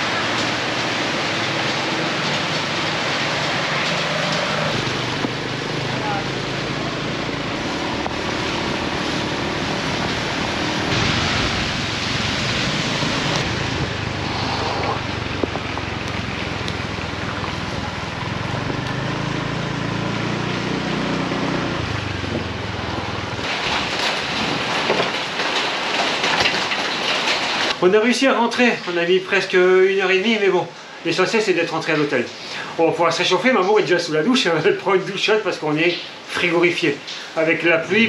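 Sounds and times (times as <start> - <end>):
heavy rain hiss: 0.0 - 22.7, 23.4 - 38.0
scooter engine hum: 0.0 - 23.5
wind rushing over microphone: 6.4 - 18.8.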